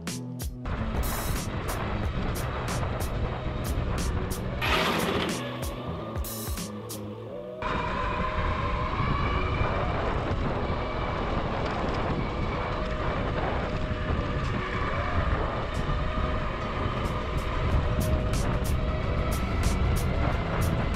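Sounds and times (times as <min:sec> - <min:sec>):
electric motor whine: 0:01.6 - 0:06.5
wind on the microphone: 0:07.6 - 0:20.9.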